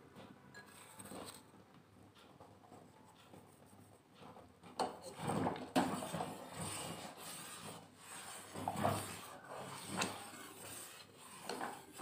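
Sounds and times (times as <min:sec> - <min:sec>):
ladle scraping a steel pot: 0:00.6 - 0:01.5, 0:04.8 - 0:12.0.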